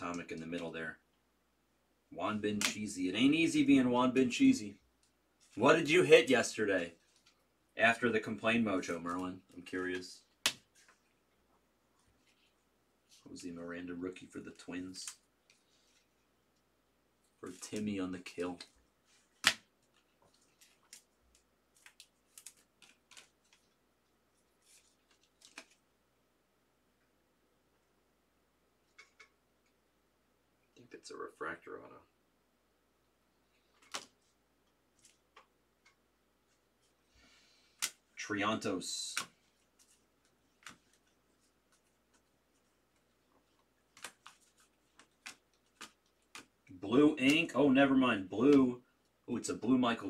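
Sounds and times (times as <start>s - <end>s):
card snap: 19.4s - 19.6s
trading cards clicking and sliding: 43.0s - 47.5s.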